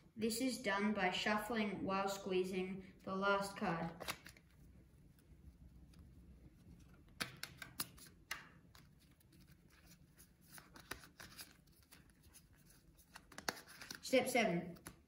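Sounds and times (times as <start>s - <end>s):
playing cards being shuffled: 3.8s - 15.0s.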